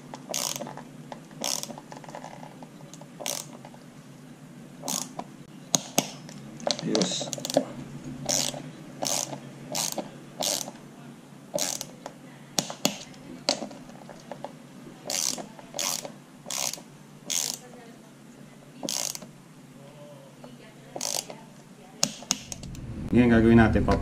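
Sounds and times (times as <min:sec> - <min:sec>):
torque wrench ratcheting: 0:00.1 - 0:00.8, 0:01.4 - 0:03.6, 0:04.8 - 0:05.2, 0:08.3 - 0:10.8, 0:11.6 - 0:11.9, 0:15.1 - 0:17.7, 0:18.8 - 0:19.3, 0:21.0 - 0:21.4.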